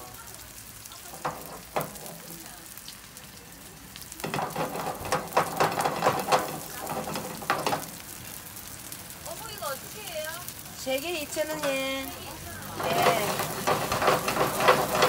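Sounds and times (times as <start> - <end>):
pancake sizzling in oil: 0.0 - 15.0
frying pan clattering: 0.9 - 2.6, 4.1 - 8.4, 11.2 - 15.0.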